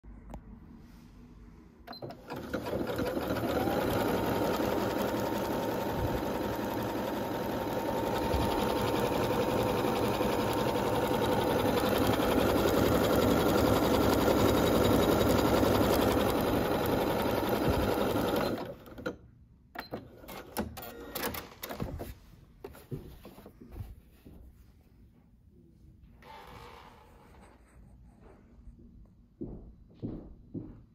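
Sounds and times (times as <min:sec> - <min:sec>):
sewing machine running: 0:02.0 - 0:19.0.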